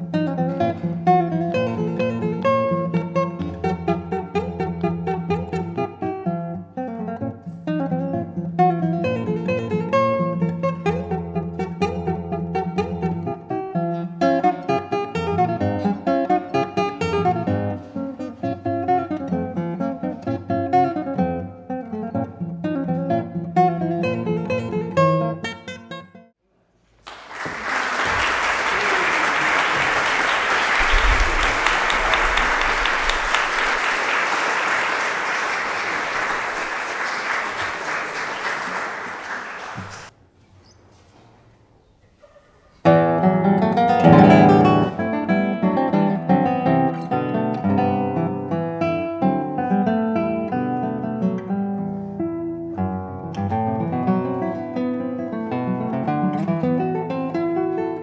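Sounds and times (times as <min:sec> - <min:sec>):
fingerpicked classical guitar: 0:00.0 - 0:26.3, 0:42.8 - 0:58.0
audience applauding: 0:27.0 - 0:40.1.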